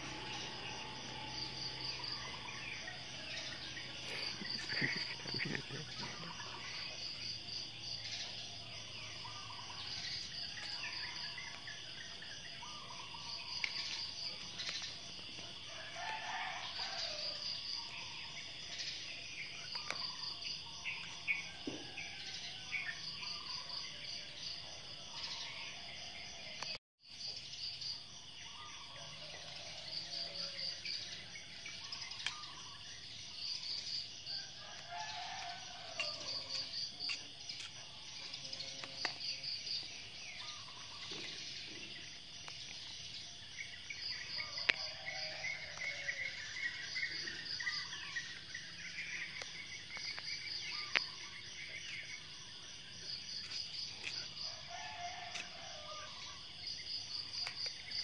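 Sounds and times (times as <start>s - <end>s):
birds calling: 0.0s - 21.5s, 44.2s - 52.3s
insects chirping in pulsing trills: 0.0s - 58.0s.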